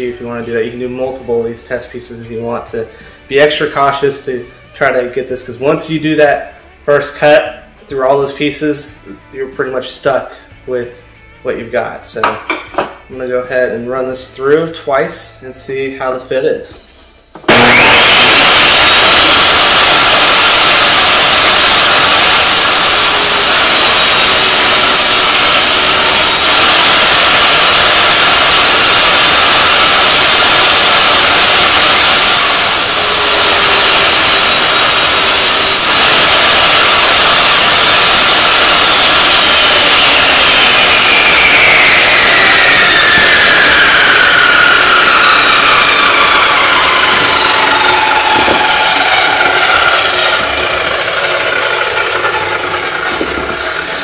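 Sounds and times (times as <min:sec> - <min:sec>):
table saw cutting wood: 0:17.4 - 0:54.0
whine falling in pitch: 0:36.3 - 0:54.0.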